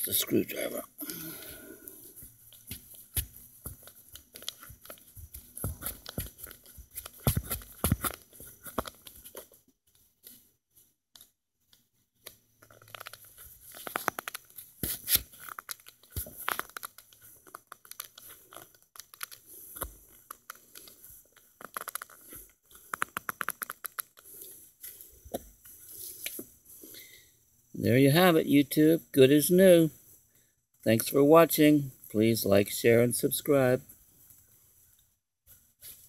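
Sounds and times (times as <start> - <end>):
gloves rubbing on hose: 2.0 - 9.5.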